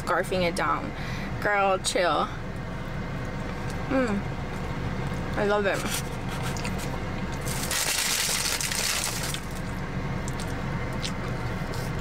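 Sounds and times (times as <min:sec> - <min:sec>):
steady low hum: 0:00.0 - 0:12.0
person chewing food: 0:05.9 - 0:07.8, 0:09.2 - 0:12.0.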